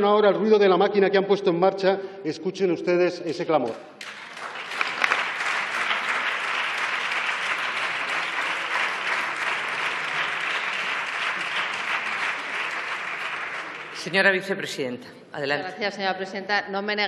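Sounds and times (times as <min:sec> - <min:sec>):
crowd clapping: 0:03.5 - 0:15.0.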